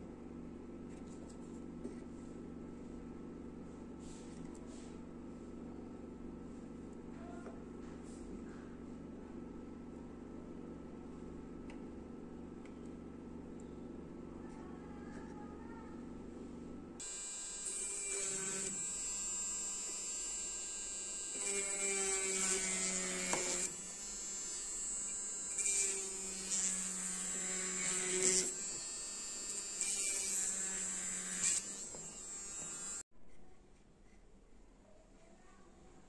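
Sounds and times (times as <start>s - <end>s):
rotary tool whining: 17.0s - 33.0s.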